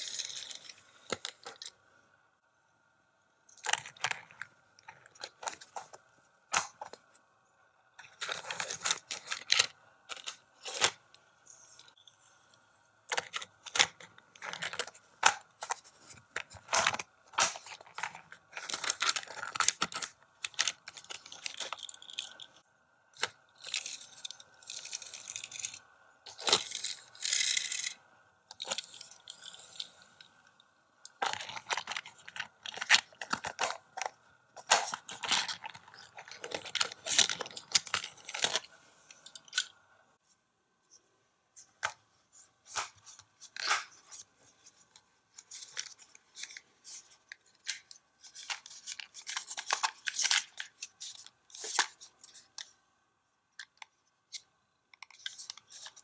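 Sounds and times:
toy cars rolling on plastic track: 26.5s - 28.0s.

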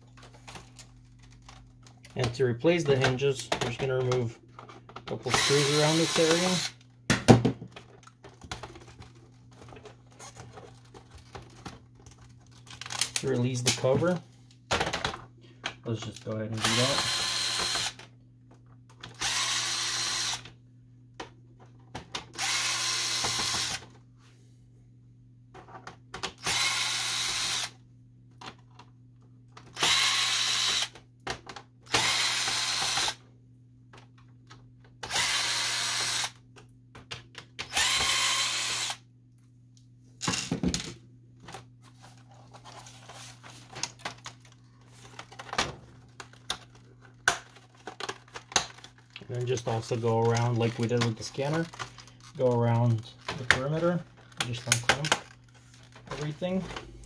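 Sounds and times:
plastic parts clicking and knocking: 0.1s - 19.6s, 21.1s - 24.0s, 25.5s - 26.7s, 28.3s - 28.9s, 29.5s - 33.1s, 36.0s - 38.9s, 40.2s - 43.0s, 43.6s - 57.0s
cordless drill running: 5.3s - 6.8s, 16.6s - 18.0s, 19.2s - 20.4s, 22.4s - 23.8s, 26.4s - 27.8s, 29.8s - 30.9s, 31.9s - 33.2s, 35.0s - 36.4s, 37.7s - 39.0s.

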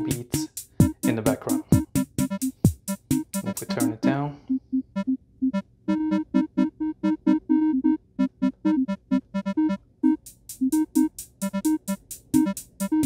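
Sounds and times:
fast hi-hat ticking: 0.0s - 4.2s, 10.1s - 13.0s
plucky synth notes: 3.2s - 4.2s, 5.5s - 9.8s.

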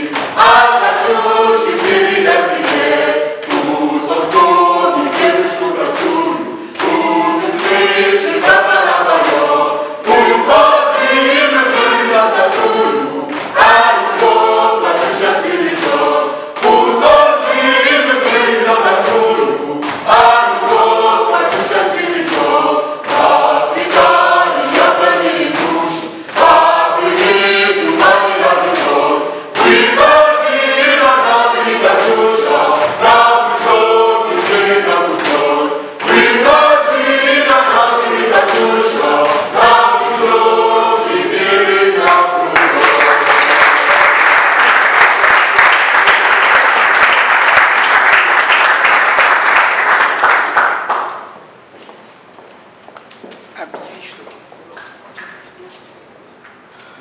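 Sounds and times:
choir singing: 0.0s - 50.4s
hand claps: 42.0s - 51.3s.

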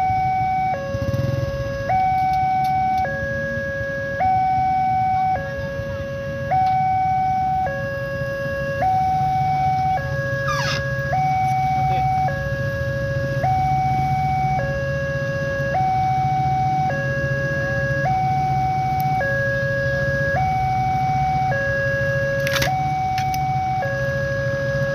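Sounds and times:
two-tone level crossing alarm: 0.0s - 24.9s.

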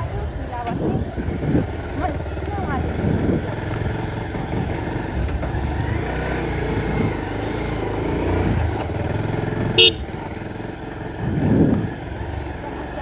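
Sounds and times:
vehicle engine running: 0.0s - 13.0s
horn beep: 9.8s - 10.2s.

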